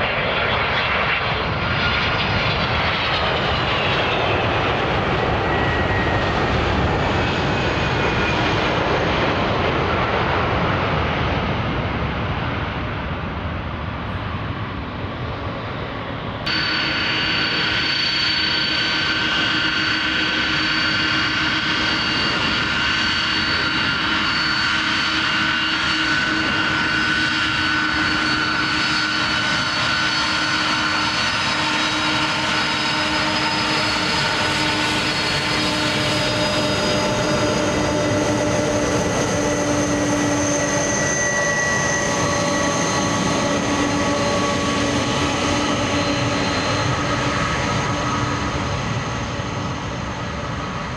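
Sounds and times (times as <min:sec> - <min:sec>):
jet engines roaring with whine: 0:00.0 - 0:50.9.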